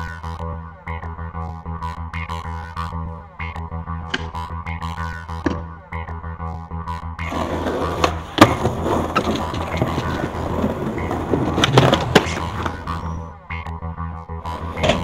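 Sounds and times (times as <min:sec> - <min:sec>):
skateboard clacks: 0:04.1 - 0:04.4, 0:07.3 - 0:13.2, 0:14.5 - 0:15.0
skateboard wheels rolling on stone: 0:07.3 - 0:13.2, 0:14.5 - 0:15.0.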